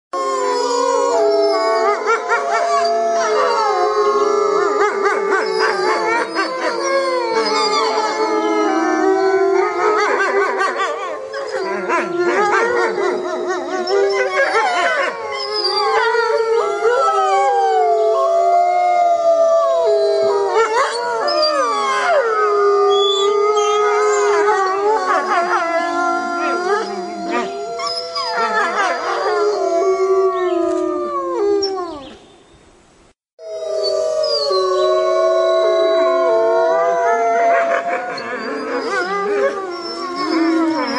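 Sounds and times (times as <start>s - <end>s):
wolves howling: 0.2s - 32.2s, 33.4s - 40.9s.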